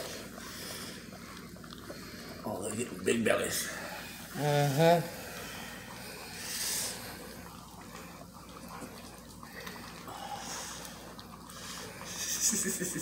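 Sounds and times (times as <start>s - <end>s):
puppies lapping and snuffling: 0.0s - 3.0s.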